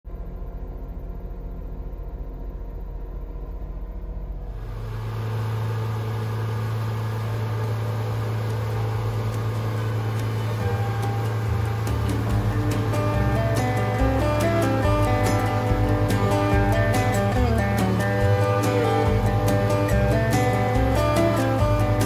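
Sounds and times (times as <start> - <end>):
boat engine humming: 0.0 - 22.0
water rushing past hull: 4.5 - 22.0.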